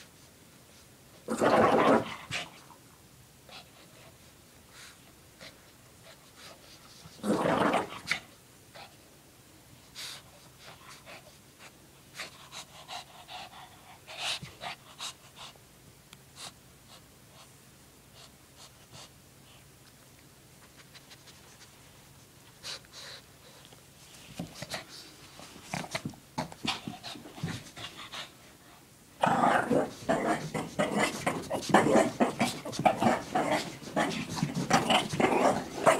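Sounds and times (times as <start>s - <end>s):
dog panting and snuffling: 9.9s - 15.6s, 22.5s - 28.9s.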